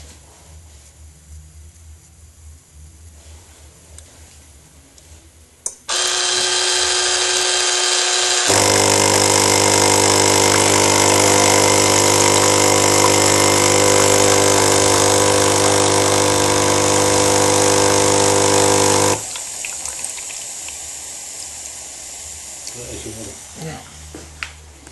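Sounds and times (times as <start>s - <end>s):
espresso machine pump buzzing: 5.9s - 23.6s
espresso machine click: 8.5s - 19.2s.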